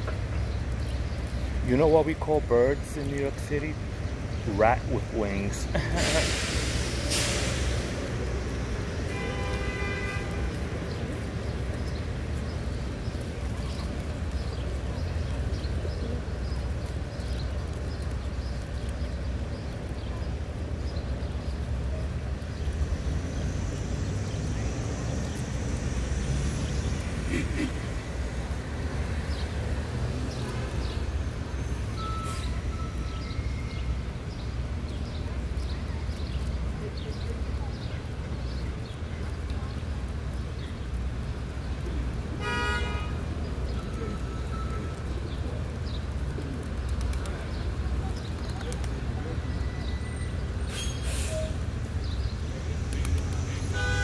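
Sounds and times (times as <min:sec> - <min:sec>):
city traffic rumble: 0:00.0 - 0:54.0
car horn toot: 0:09.1 - 0:10.3, 0:42.4 - 0:43.1, 0:53.8 - 0:54.0.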